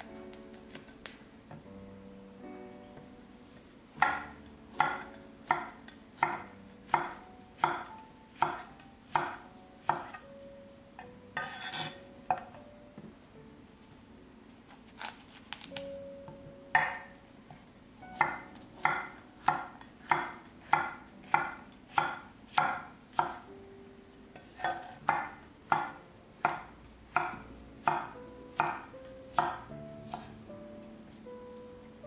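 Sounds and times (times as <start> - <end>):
knife chopping on wooden board: 4.0 - 10.2, 18.2 - 23.4, 24.6 - 30.3.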